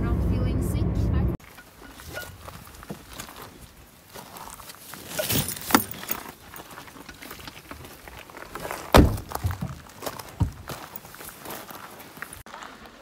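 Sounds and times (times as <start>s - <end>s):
car door thump: 8.9s - 9.7s.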